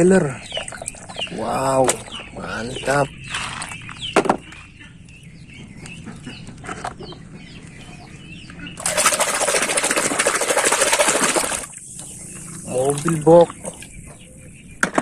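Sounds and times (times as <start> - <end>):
toy truck splashing in muddy water: 8.8 - 11.7.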